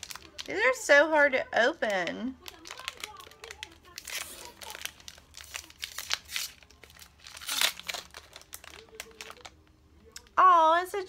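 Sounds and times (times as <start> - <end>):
packaging tearing and crinkling: 0.0 - 0.6, 2.4 - 9.6.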